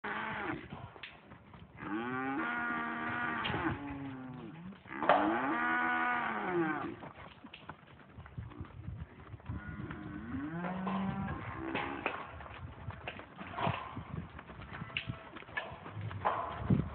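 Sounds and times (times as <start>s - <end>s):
cattle mooing: 1.8s - 7.0s, 9.6s - 12.1s.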